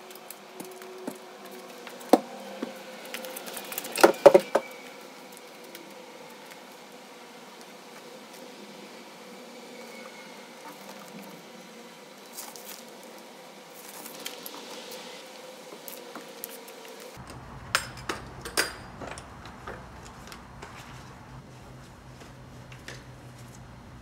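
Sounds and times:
room hiss: 0.0 - 17.6.

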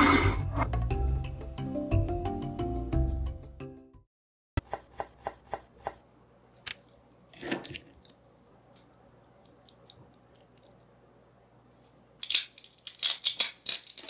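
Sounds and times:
background music: 0.0 - 4.0
knife chopping on cutting board: 4.6 - 6.0.

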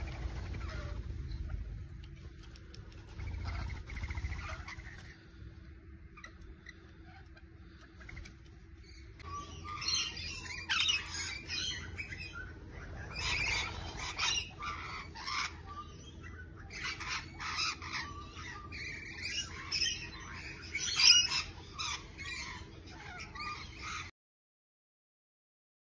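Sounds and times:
lorikeets screeching: 3.0 - 5.2, 6.0 - 24.1.

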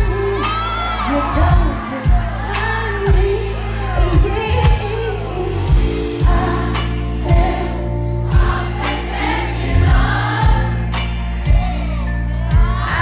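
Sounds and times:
woman singing with vibrato: 0.0 - 7.9
band playing guitar bass drums: 0.0 - 13.0.

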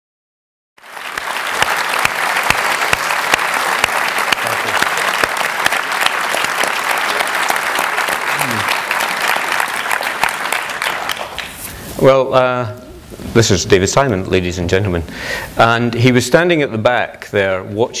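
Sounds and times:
audience applause: 0.8 - 11.7.

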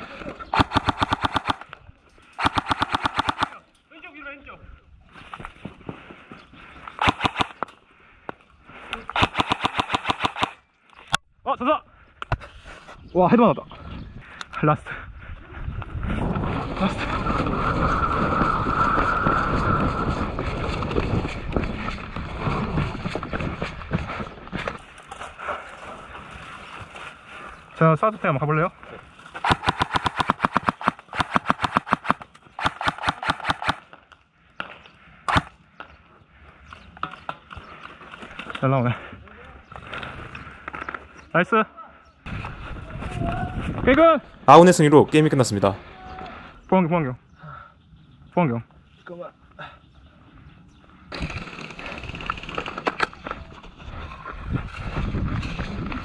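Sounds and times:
airsoft electric rifle firing: 0.6 - 1.7, 2.4 - 3.6, 7.0 - 7.6, 9.2 - 10.6, 29.4 - 33.8.

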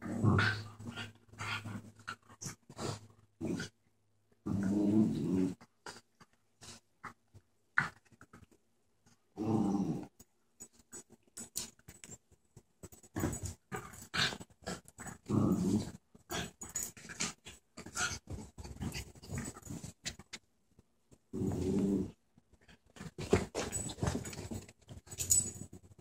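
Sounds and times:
dogs growling: 0.0 - 3.7, 13.2 - 20.0, 21.3 - 22.2.

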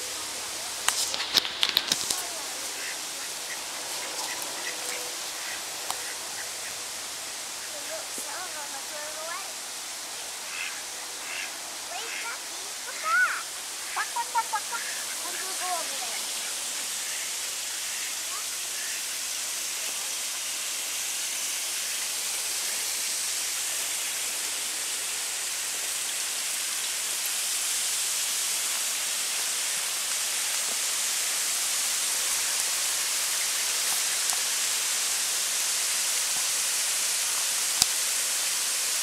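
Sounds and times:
creek water rushing: 0.0 - 39.0.

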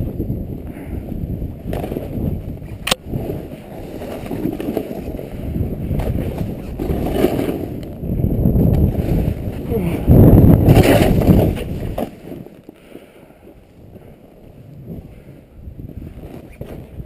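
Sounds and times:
wind on microphone: 0.0 - 12.5, 13.4 - 17.0
snowboard scraping through snow: 3.0 - 7.8, 8.6 - 12.6.

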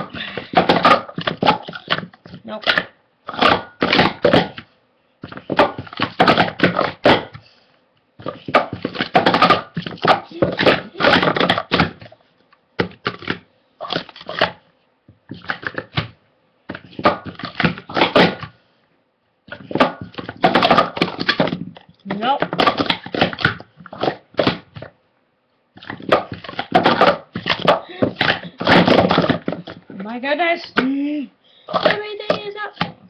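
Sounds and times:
plastic cups clattering: 0.0 - 4.6, 5.2 - 7.4, 8.2 - 12.1, 15.3 - 16.1, 19.5 - 24.9, 25.8 - 30.9, 31.7 - 33.0.

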